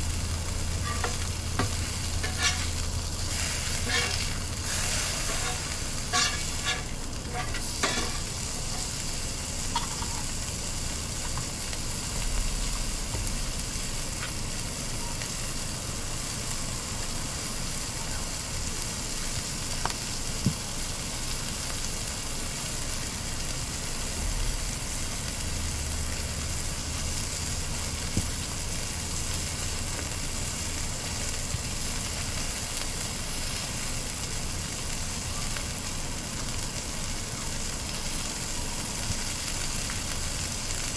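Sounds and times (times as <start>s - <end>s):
patties sizzling on griddle: 0.0s - 40.9s.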